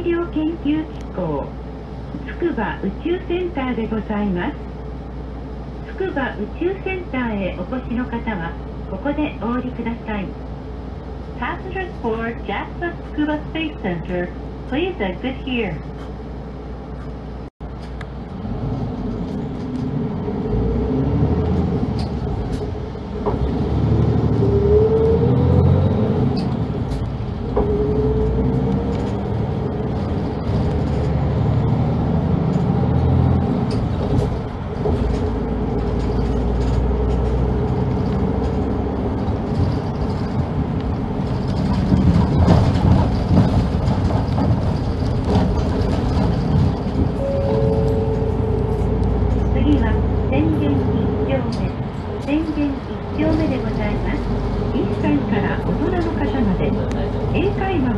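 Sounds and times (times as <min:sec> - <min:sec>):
bus engine accelerating: 0:00.0 - 0:57.9
drivetrain whine: 0:21.4 - 0:52.4.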